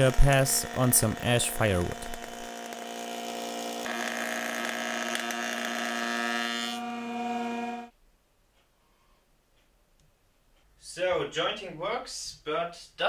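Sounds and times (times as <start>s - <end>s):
cutter head planing wood: 0.0s - 7.9s
jointer humming: 0.0s - 7.9s.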